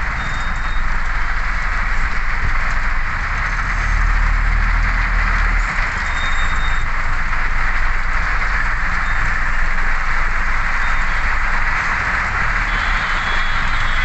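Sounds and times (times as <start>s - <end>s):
heavy rain on car roof: 0.0s - 14.0s.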